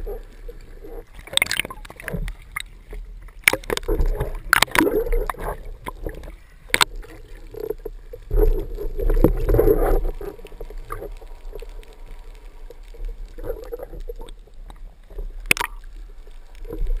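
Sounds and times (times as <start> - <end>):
water sloshing and gurgling: 0.0 - 17.0.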